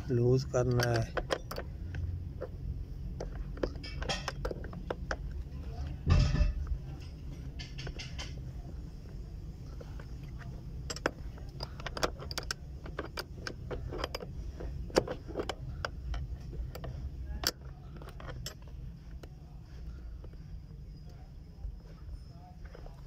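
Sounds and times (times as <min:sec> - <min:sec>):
steady low rumble: 0:00.0 - 0:23.0
spanners clinking against nut: 0:00.4 - 0:02.5, 0:03.2 - 0:05.4, 0:06.1 - 0:08.4, 0:09.8 - 0:19.4.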